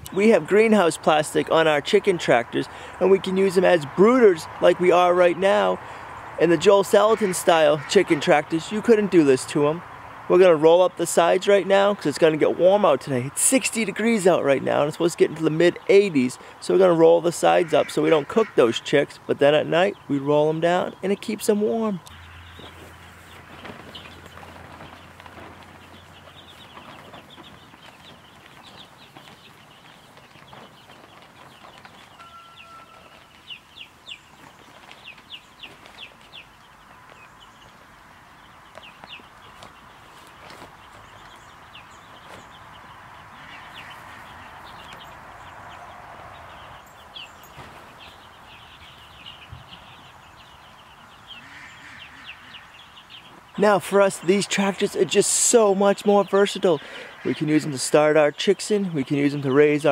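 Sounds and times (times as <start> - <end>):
chicks and ducklings peeping: 0.0 - 59.9
plastic sheeting rustling: 22.3 - 38.0.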